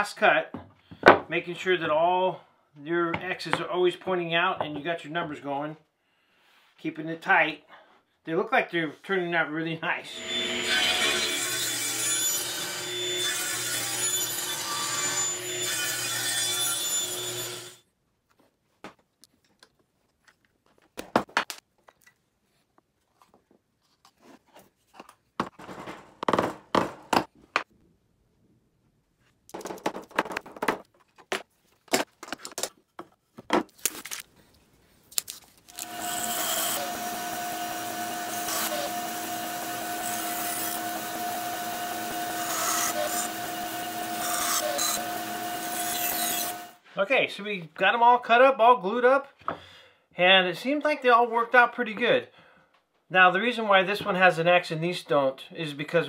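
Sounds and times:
bandsaw whine: 0:10.1 - 0:16.0, 0:35.7 - 0:46.8
table saw running: 0:10.1 - 0:17.8, 0:35.7 - 0:46.8.

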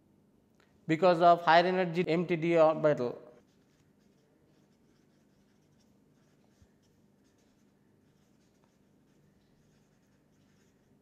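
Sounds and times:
marker pen squeaking on paper: 0:03.4 - 0:11.0.

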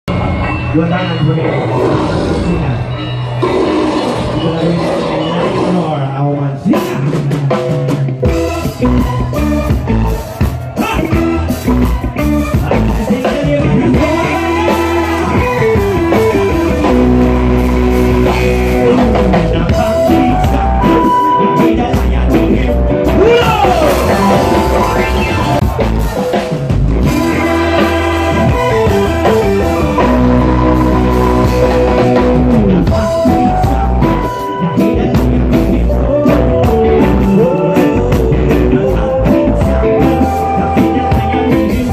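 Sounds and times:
bass guitar: 0:00.0 - 0:41.9
electric guitar: 0:00.1 - 0:41.9
drum kit: 0:02.4 - 0:41.9
person singing into microphone: 0:18.2 - 0:25.6, 0:27.0 - 0:41.9.

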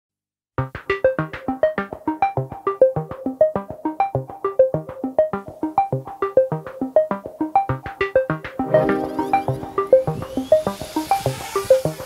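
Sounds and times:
plucked synthesizer notes: 0:08.6 - 0:10.4.

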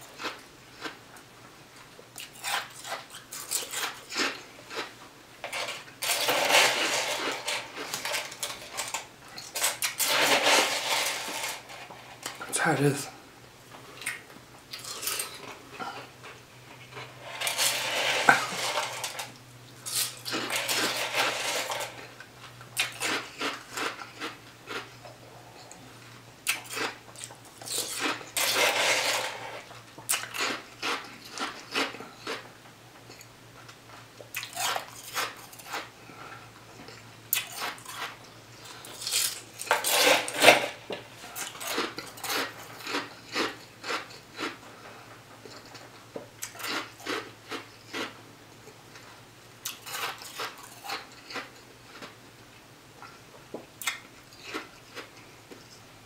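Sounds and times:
ice being chewed: 0:00.0 - 0:01.2, 0:01.8 - 0:04.9, 0:14.0 - 0:25.8, 0:26.4 - 0:32.5, 0:34.3 - 0:49.0, 0:49.6 - 0:52.2, 0:53.8 - 0:55.7
plastic spoon scraping a cup: 0:09.6 - 0:12.1, 0:17.1 - 0:19.3.

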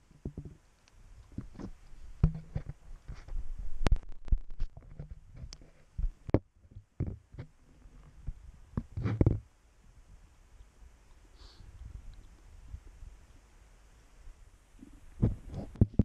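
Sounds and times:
wind buffeting microphone: 0:11.6 - 0:13.2.

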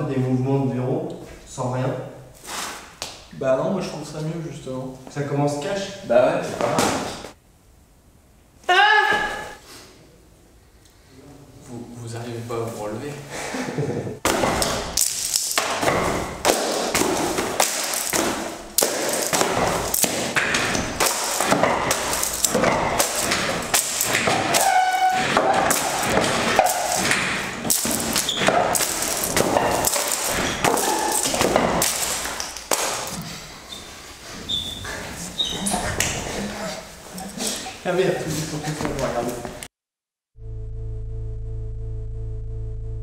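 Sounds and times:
desk items clattering on tile floor: 0:14.6 - 0:33.3.

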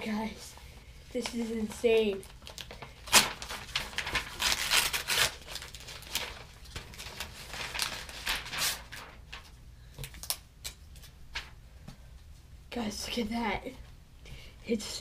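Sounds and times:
cardboard being torn open: 0:02.5 - 0:06.4.

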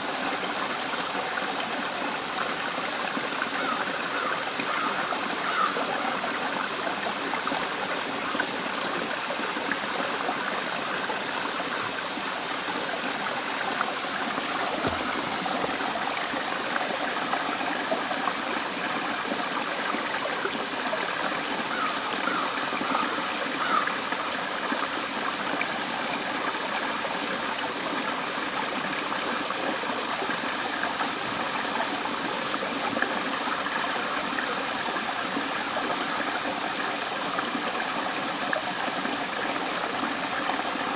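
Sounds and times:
water rushing over rocks: 0:00.0 - 0:40.9.

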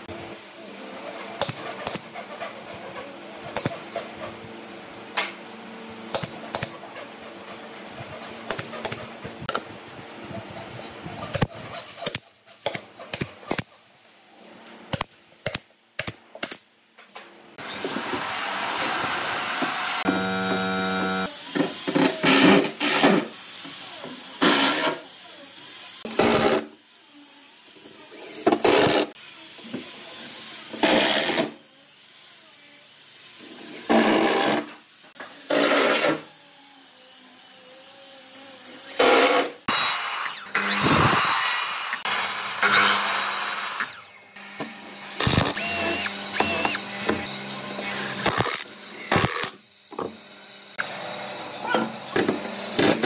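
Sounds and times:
nail gun firing into wood: 0:06.1 - 0:06.8
drill driving screws into wood: 0:17.6 - 0:25.1, 0:26.0 - 0:26.8, 0:27.8 - 0:32.3, 0:33.3 - 0:36.6, 0:37.6 - 0:51.1, 0:52.1 - 0:53.0
steady machine noise: 0:18.3 - 0:21.3.

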